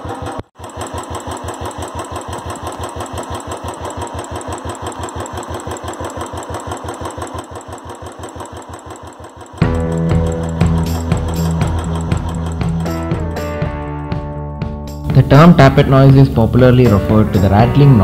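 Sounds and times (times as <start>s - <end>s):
motorcycle engine idling: 0.0s - 13.7s.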